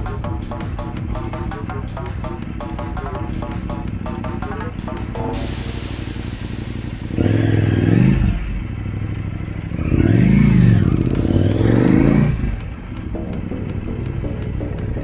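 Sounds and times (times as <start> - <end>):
motorcycle engine revving: 5.8 - 15.0.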